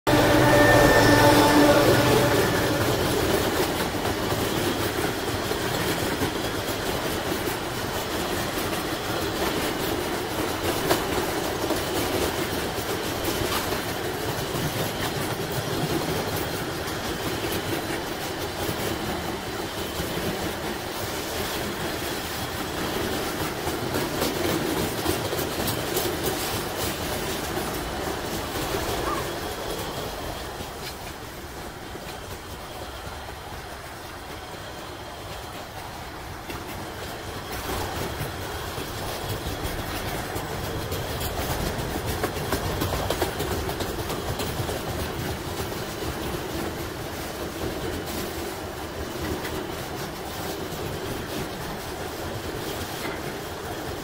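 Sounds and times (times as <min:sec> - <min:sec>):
diesel locomotive engine: 0:00.0 - 0:54.0
train wheels on rails: 0:00.1 - 0:54.0
wheels clicking over rail joints: 0:03.6 - 0:54.0.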